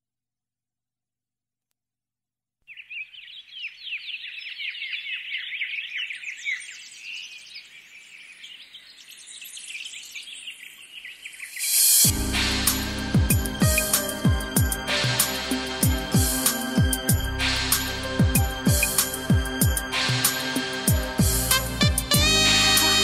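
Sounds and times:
small birds chirping: 2.6 - 12.1.

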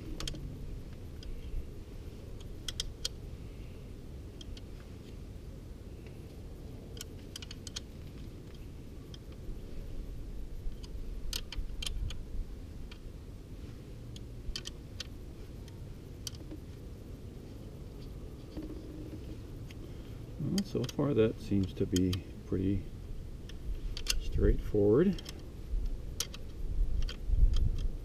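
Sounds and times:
steady low hum: 0.0 - 28.0
small tools clicking and tapping: 2.4 - 3.2, 6.9 - 9.4, 14.1 - 16.6, 20.5 - 22.2, 25.1 - 25.4, 26.1 - 28.0.

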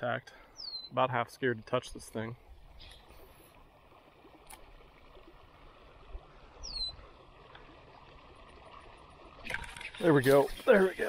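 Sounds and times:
short high bird chirp: 0.6 - 1.0, 6.6 - 7.0.

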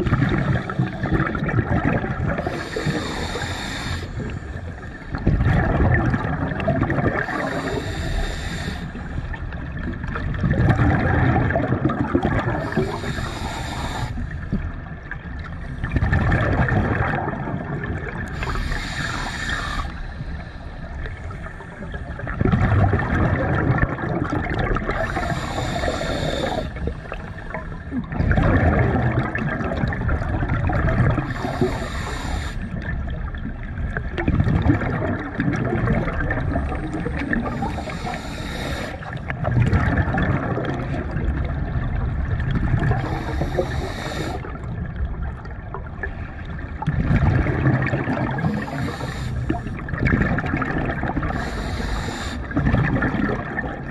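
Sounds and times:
exhaust bubbles underwater: 0.0 - 53.9
regulator inhale hiss: 2.4 - 5.0, 7.2 - 9.3, 12.6 - 14.6, 18.3 - 21.6, 24.9 - 27.6, 31.2 - 32.8, 37.1 - 39.2, 43.0 - 44.6, 48.4 - 49.8, 51.3 - 52.6.

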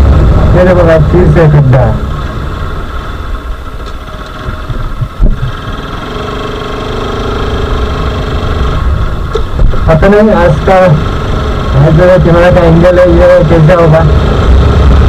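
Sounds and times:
motorcycle engine running: 0.0 - 15.0
road and wind noise: 0.0 - 15.0
thump: 4.6 - 5.6.

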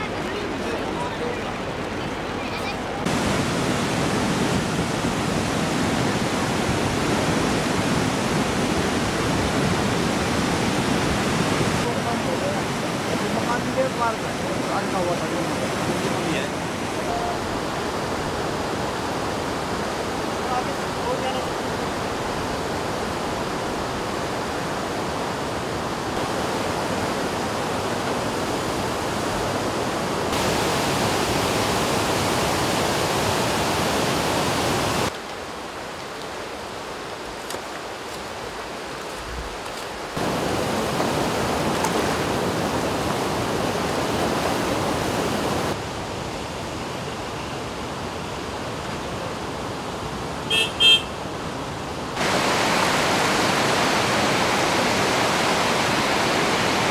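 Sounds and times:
river rushing in flood: 0.0 - 56.9
vehicle horn toots: 50.5 - 51.2.

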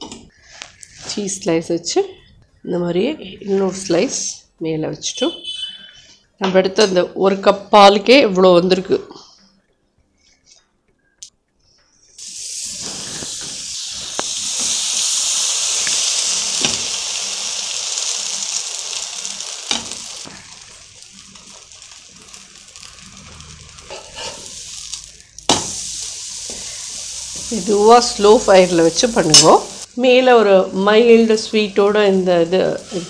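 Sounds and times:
bread sizzling in butter: 12.2 - 33.0.

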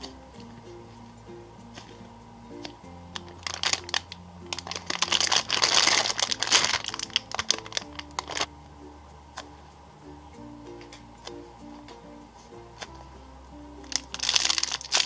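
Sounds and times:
background music: 0.0 - 15.0
plastic bag crinkling: 2.6 - 8.5, 13.8 - 15.0.

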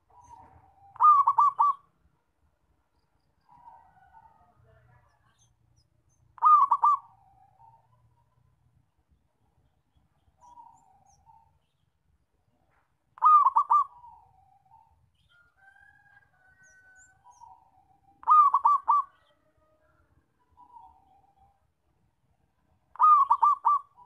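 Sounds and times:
dove cooing: 0.0 - 1.8, 6.4 - 8.0, 13.2 - 14.9, 16.5 - 19.5, 22.9 - 24.0.

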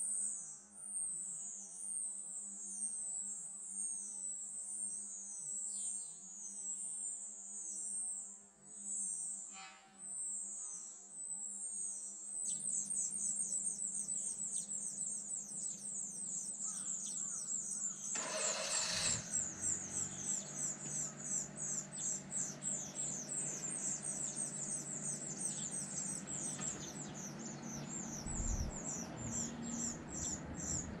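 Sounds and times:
nestlings cheeping: 18.2 - 20.4.

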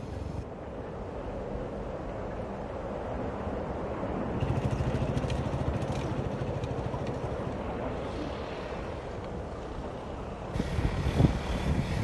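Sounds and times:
wind noise on microphone: 0.0 - 12.0.

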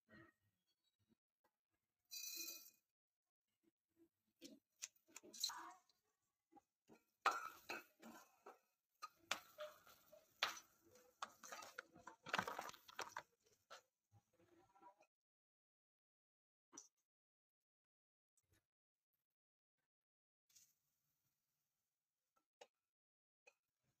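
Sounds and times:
pieces falling into metal pan: 11.3 - 13.3.

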